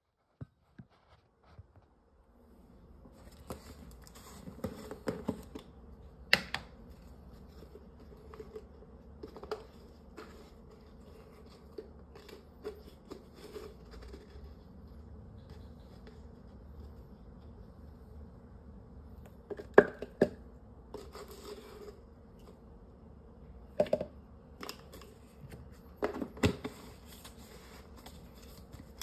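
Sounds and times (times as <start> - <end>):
steady low hum: 0.2 - 29.0.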